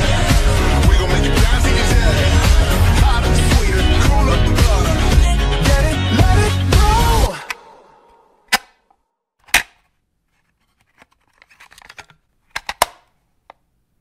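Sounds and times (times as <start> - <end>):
music: 0.0 - 8.2.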